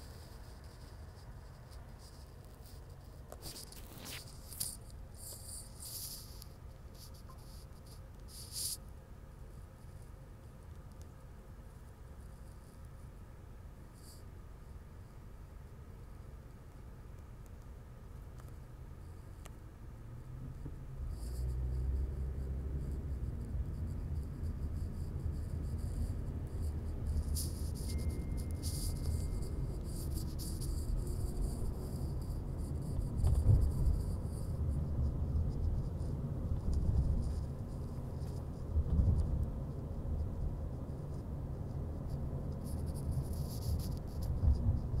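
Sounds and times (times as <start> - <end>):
car engine and road rumble: 0.0 - 45.0
faint high-pitched chirring: 21.0 - 38.7.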